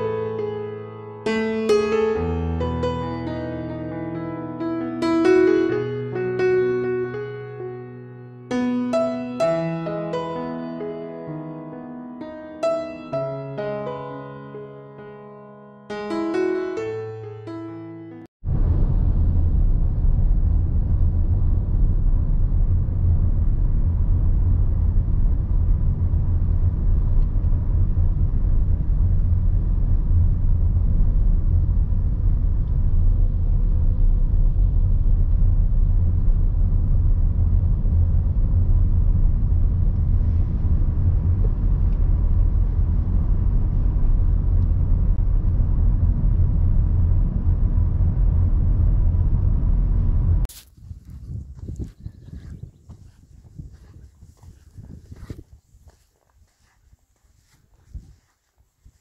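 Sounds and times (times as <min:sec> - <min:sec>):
vehicle rumbling: 0:18.4 - 0:56.8.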